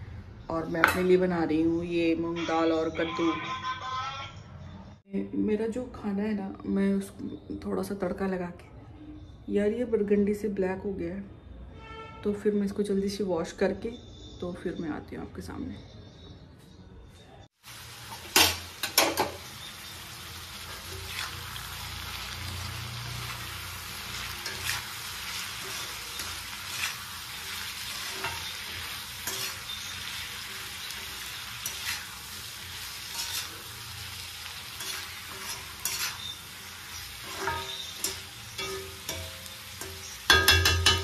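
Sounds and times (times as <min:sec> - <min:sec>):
food sizzling in a wok: 0:17.6 - 0:41.0
metal spatula scraping a pan: 0:20.6 - 0:22.6, 0:23.2 - 0:41.0.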